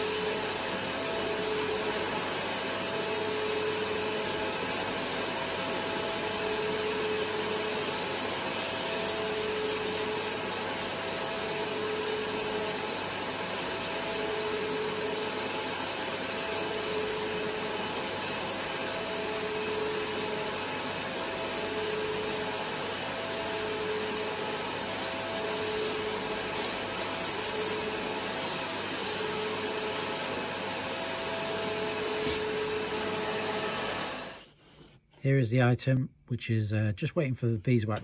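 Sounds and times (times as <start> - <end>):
air abrasive blasting hiss: 16.7 - 34.6.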